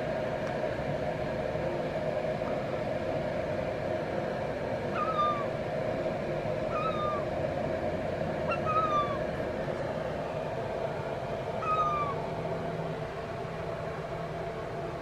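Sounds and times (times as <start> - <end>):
steady low hum: 0.0 - 15.0
gull mewing calls: 4.9 - 5.6, 6.6 - 7.3, 8.4 - 9.3, 11.6 - 12.3.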